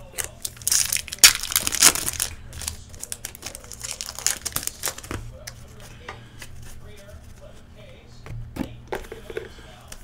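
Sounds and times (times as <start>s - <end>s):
plastic wrappers crinkling: 0.0s - 5.2s.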